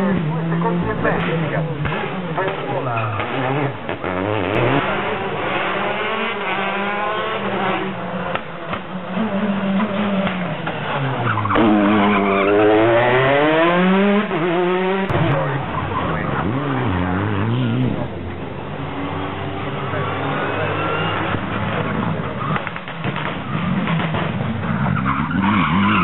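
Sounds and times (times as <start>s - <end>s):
rally car engine revving: 0.0s - 26.0s.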